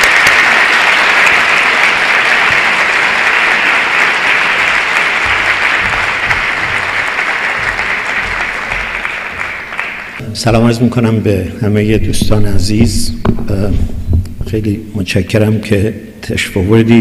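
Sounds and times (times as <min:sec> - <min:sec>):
large audience applauding: 0:00.0 - 0:10.2.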